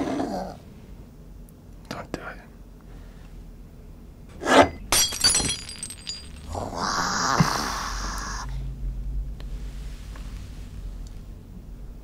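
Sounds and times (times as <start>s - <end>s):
ceramic shattering: 4.8s - 6.8s.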